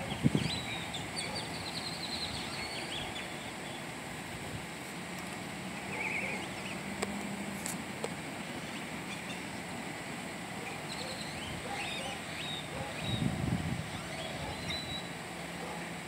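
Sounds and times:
small birds chirping: 0.0s - 4.0s, 5.8s - 7.0s, 8.5s - 9.8s, 10.5s - 15.9s
street background noise: 0.0s - 16.0s.

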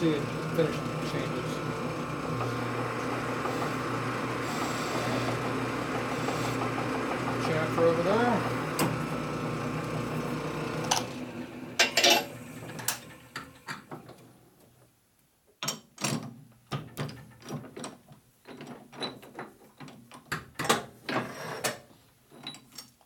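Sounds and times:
lathe running down: 0.0s - 13.7s.

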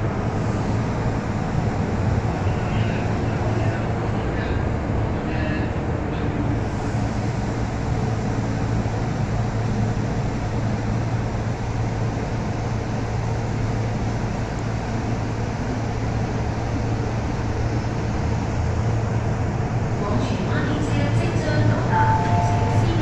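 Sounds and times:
low hum: 21.7s - 23.0s.

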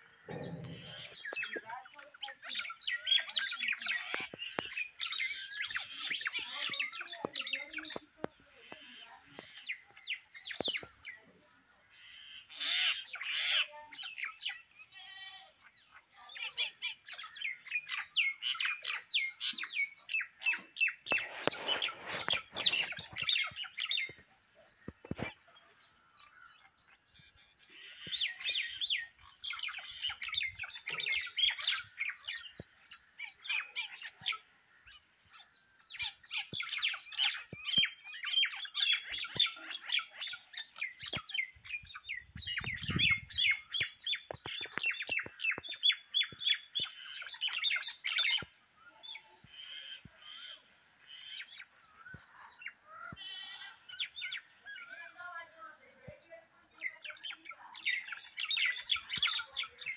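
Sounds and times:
birds squawking while fighting: 0.0s - 8.0s, 11.9s - 15.6s, 16.7s - 24.2s, 35.8s - 48.5s, 52.6s - 55.0s.

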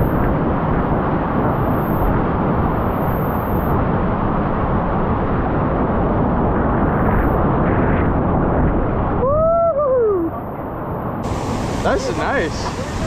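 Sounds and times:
rushing creek whitewater: 11.2s - 13.0s
person's voice: 11.8s - 13.0s.

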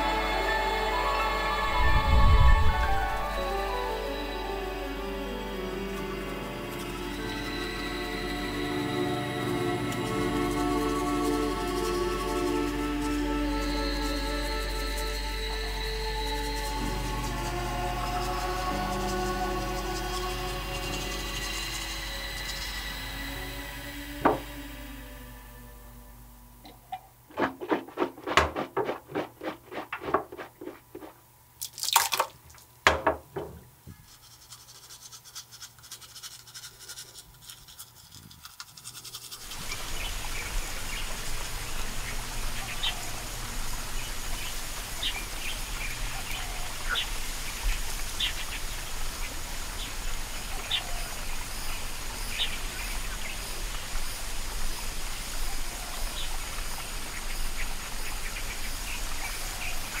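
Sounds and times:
low hum: 0.0s - 31.3s.

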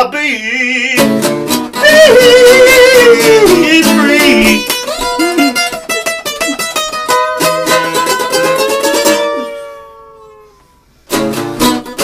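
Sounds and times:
strummed acoustic guitar: 0.0s - 12.0s
man singing held note: 1.8s - 4.8s.

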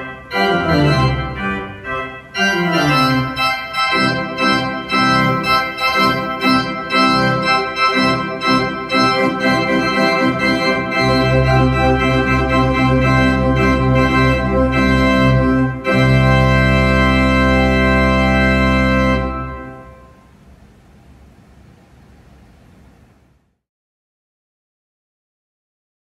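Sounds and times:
church organ playing: 0.0s - 20.4s.

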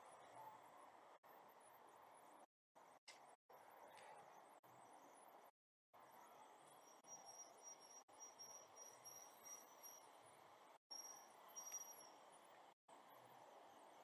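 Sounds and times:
insect chirping: 4.7s - 10.1s, 10.9s - 12.4s.

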